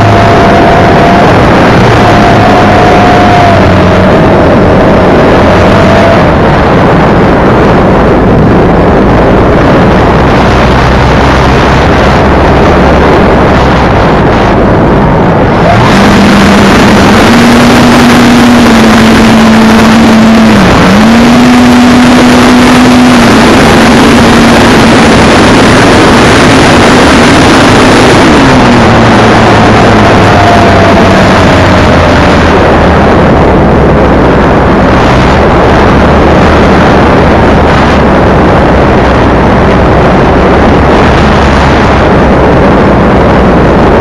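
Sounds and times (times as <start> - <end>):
wind rush: 0.0 - 44.0.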